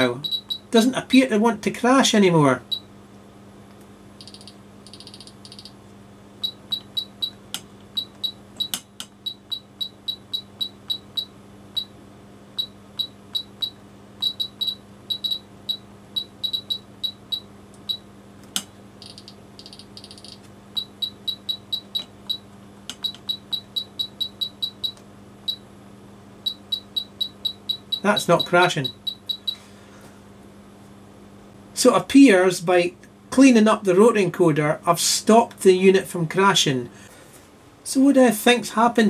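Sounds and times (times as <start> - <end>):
longer buzzing beeps: 0.0 - 0.8, 2.6 - 2.9, 4.2 - 5.8, 6.4 - 12.0, 12.6 - 18.1, 19.0 - 25.7, 26.4 - 29.6
steady low hum: 0.0 - 39.0
short high beeps: 0.2 - 0.7, 4.2 - 5.7
sharp clicks: 3.7 - 5.8, 6.4 - 9.6, 17.7 - 23.8.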